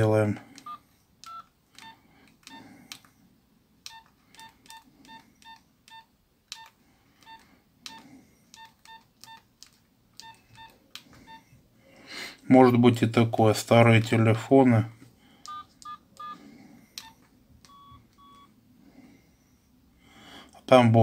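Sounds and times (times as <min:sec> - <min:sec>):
phone keypad beeps: 0:00.6 - 0:03.0, 0:03.8 - 0:09.5, 0:10.2 - 0:11.6, 0:15.4 - 0:18.5.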